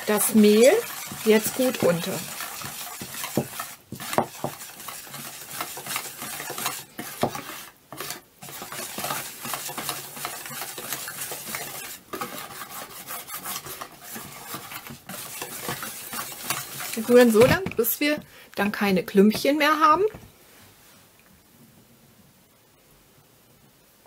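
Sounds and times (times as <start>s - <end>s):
whisk stirring batter in bowl: 0.0s - 18.3s.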